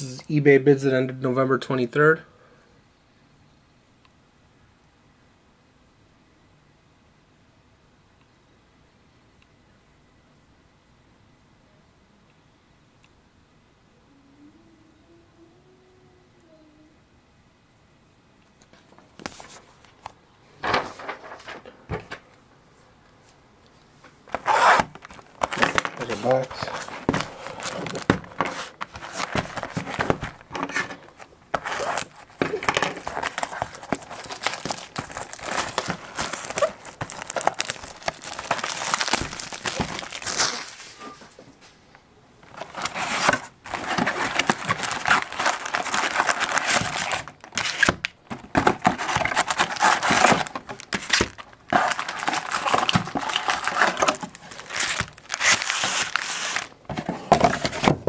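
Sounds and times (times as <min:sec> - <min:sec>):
foil packs rustling: 0:24.2 - 0:41.3, 0:42.4 - 0:58.0
packaging crinkling and tearing: 0:24.3 - 0:41.0, 0:42.4 - 0:58.0.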